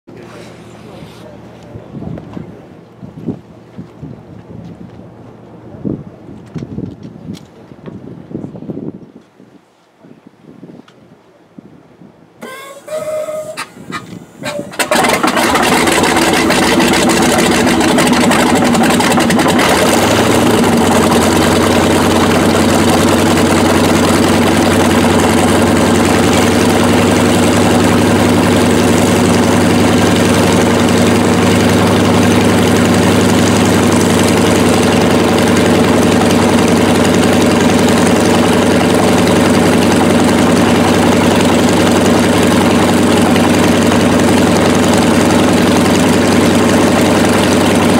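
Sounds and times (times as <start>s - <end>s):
radial aircraft engine idling: 12.4s - 47.9s.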